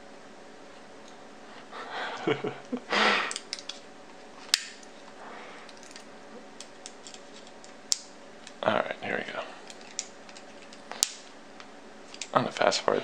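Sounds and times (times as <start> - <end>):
small metal parts rustling and ticking: 5.6 - 7.8, 9.6 - 11.1.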